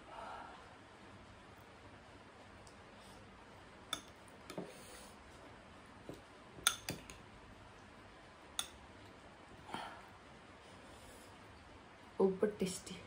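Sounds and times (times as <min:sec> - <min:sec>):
metal spoon clinking on ceramic bowl: 0:06.6 - 0:07.2.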